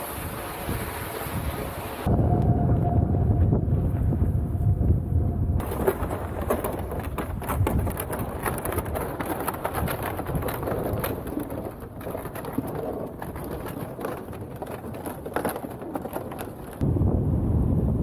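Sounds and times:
wind on microphone: 0:00.0 - 0:18.0
crackling and scraping: 0:05.6 - 0:16.9.

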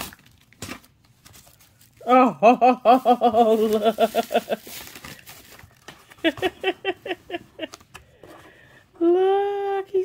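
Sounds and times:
plastic wrapping rustling: 0:00.0 - 0:02.1, 0:02.8 - 0:07.9.

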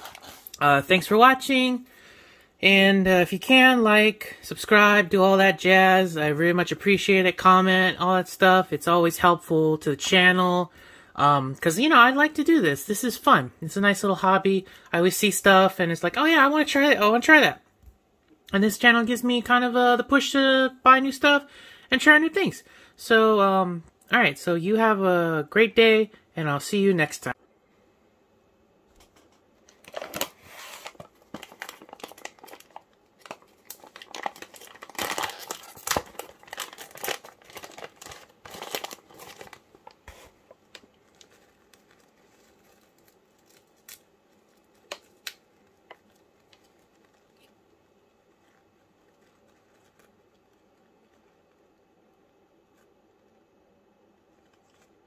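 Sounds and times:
packaging crinkling: 0:00.0 - 0:00.6, 0:29.1 - 0:51.8.

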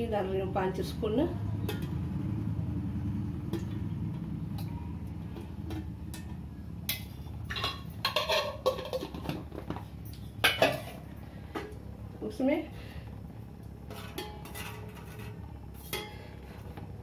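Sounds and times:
steady low hum: 0:00.0 - 0:17.0
spoon scraping a metal pot: 0:07.5 - 0:09.2.

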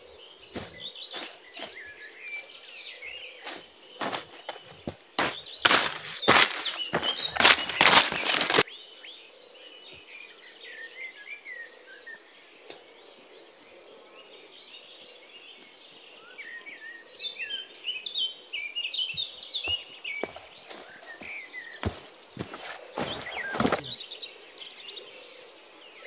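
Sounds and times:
birds chirping: 0:00.0 - 0:08.9, 0:15.4 - 0:26.0
high insect drone: 0:00.0 - 0:17.8, 0:18.5 - 0:26.0
footsteps on leaf litter: 0:00.5 - 0:02.6, 0:03.4 - 0:08.6, 0:19.7 - 0:24.0
loud rustle: 0:05.2 - 0:08.6.

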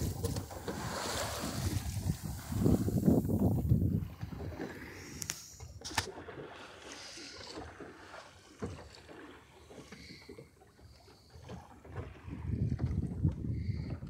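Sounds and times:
light wind: 0:00.0 - 0:10.4
water lapping against a hull: 0:00.0 - 0:14.0.

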